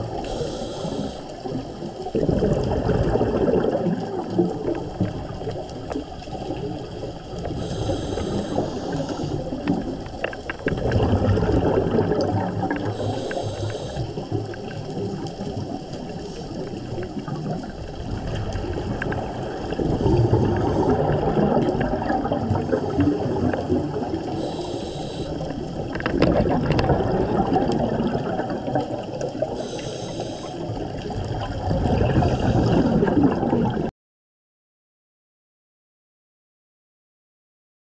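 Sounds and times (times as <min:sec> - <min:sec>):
exhaled bubbles rushing: 0:00.0 - 0:33.9
regulator inhalation hiss: 0:00.2 - 0:01.4, 0:07.5 - 0:09.5, 0:12.9 - 0:14.2, 0:24.3 - 0:25.5, 0:29.6 - 0:30.7.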